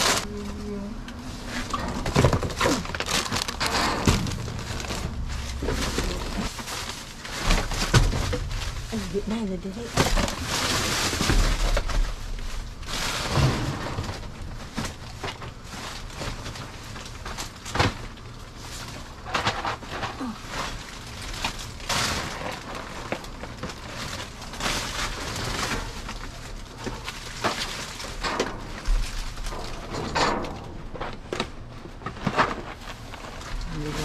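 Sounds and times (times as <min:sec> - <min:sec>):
plastic bags crinkling: 0:00.0 - 0:30.0
dull thuds of items: 0:01.6 - 0:09.0.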